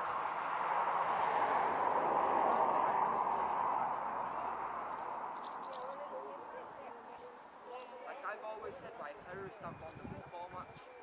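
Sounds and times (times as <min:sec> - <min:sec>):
small birds chirping: 0:00.3 - 0:00.6, 0:01.6 - 0:08.2, 0:09.6 - 0:11.0.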